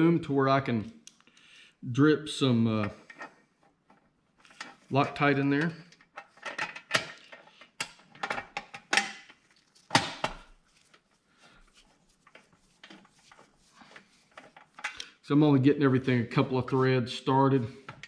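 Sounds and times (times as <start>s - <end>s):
screws and screwdriver clinking: 14.3s - 15.1s.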